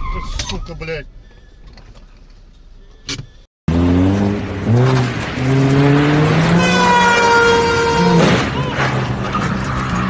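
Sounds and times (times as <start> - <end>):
car engine revving hard: 3.7 - 8.2.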